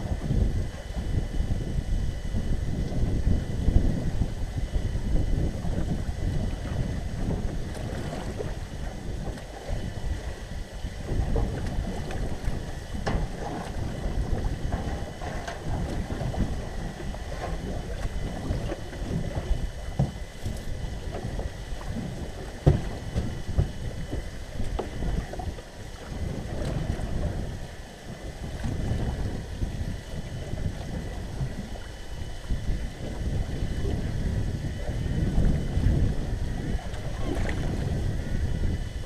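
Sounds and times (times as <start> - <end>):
wind buffeting microphone: 0.0 - 39.0
nets knocking in boat: 17.3 - 25.2.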